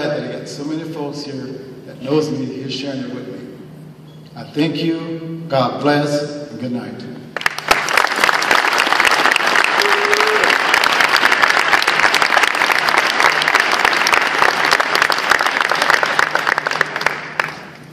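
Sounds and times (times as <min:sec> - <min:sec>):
audience applauding: 0:07.4 - 0:17.8.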